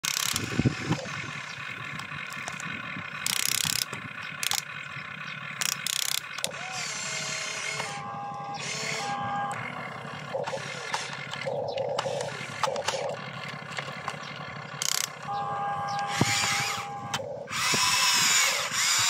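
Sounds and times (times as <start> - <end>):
toy excavator motors whining: 0.0 - 19.0
bursts of harsh noise: 5.7 - 11.4, 14.8 - 19.0.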